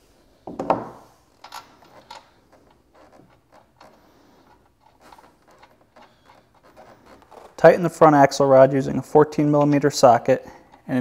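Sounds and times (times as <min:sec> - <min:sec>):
small metal clicks: 0:01.3 - 0:07.6.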